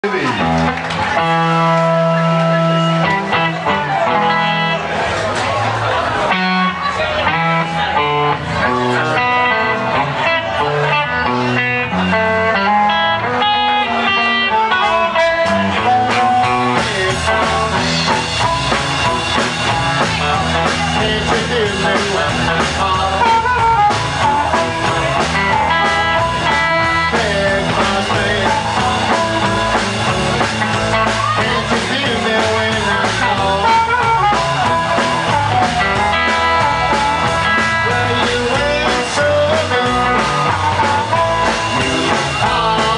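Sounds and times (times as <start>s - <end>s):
drum kit: 0.0s - 42.9s
electric guitars: 0.0s - 42.9s
amplified blues harmonica: 7.3s - 42.9s.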